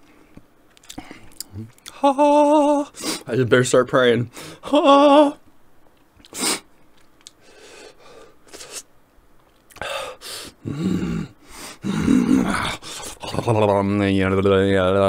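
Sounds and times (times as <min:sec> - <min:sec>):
man breathing sharply and gasping: 0:04.3 - 0:04.7, 0:07.4 - 0:08.9, 0:09.8 - 0:13.2
man grunting: 0:10.6 - 0:13.7.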